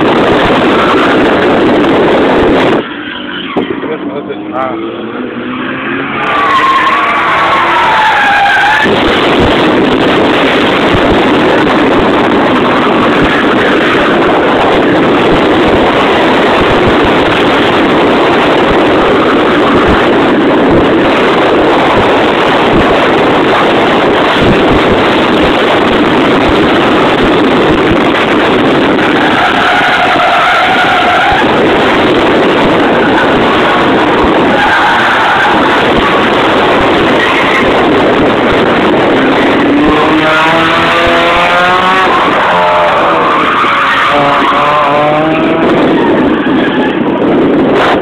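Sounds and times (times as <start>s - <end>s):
car engine revving: 0.0s - 48.0s.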